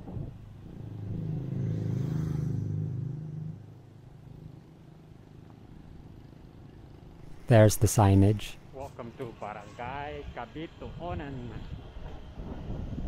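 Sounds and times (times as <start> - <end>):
low road background noise: 0.0 - 13.0
vehicle engine passing by: 0.6 - 4.8.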